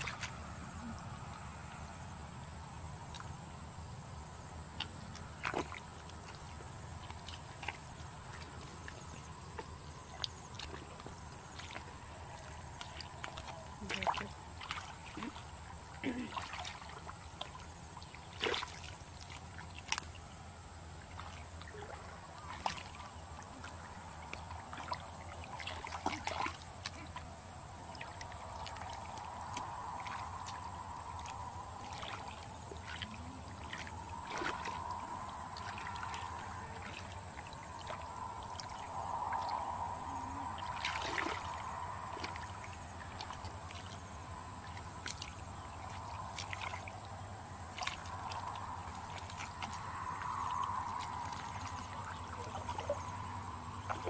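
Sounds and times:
squelching wet mud: 0.0s - 3.5s, 4.2s - 54.0s
small water splashes: 0.0s - 54.0s.

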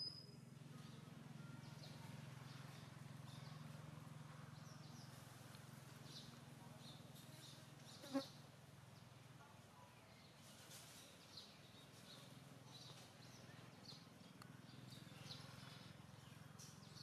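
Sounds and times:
faint high chirps: 0.0s - 3.8s.

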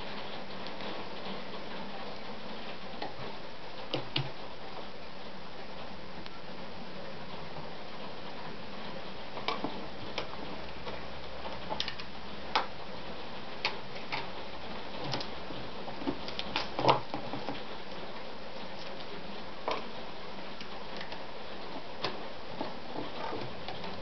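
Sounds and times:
small clicks and knocks: 9.4s - 12.7s.

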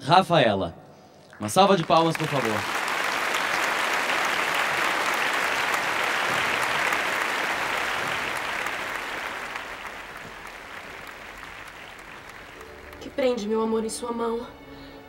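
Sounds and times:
audience applauding: 1.3s - 13.8s.

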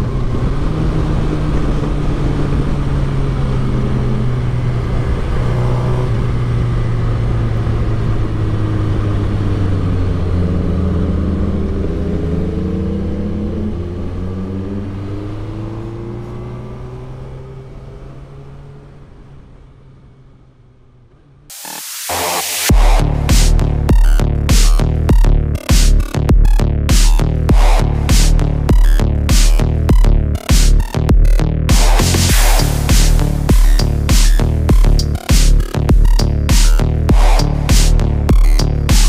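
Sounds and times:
motorcycle engine running: 22.1s - 39.0s.

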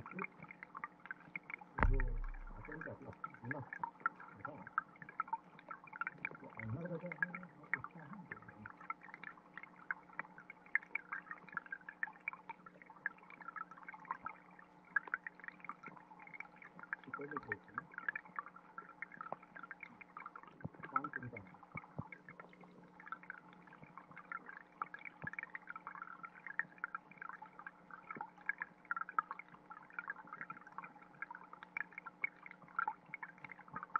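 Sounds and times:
low water gurgle: 0.0s - 33.9s
underwater stream crackle: 0.0s - 33.9s
low hum: 1.8s - 2.9s.

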